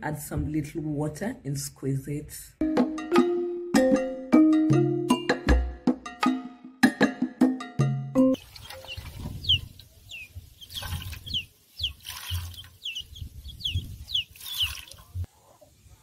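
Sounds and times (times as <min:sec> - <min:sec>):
bird peeping: 0:08.6 - 0:15.0
wet coconut squeezing by hand: 0:11.9 - 0:12.8.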